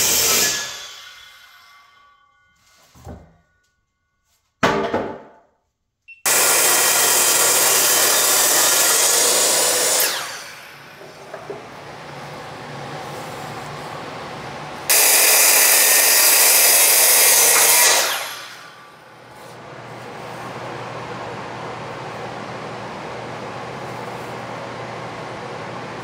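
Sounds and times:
power saw whirring: 0.0 - 2.5, 6.2 - 13.8, 14.8 - 19.2.

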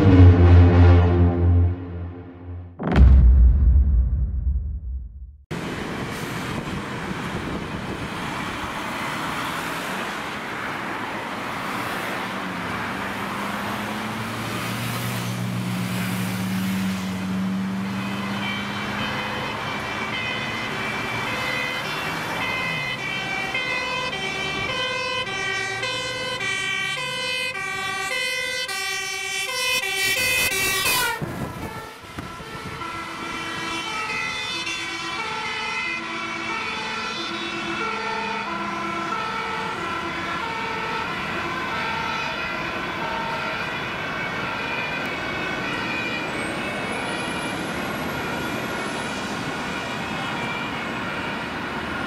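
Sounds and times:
two-tone fire engine siren: 0.0 - 2.7, 7.0 - 52.0
heavy truck engine passing: 0.0 - 2.8
road traffic: 0.0 - 2.9, 5.5 - 52.0.

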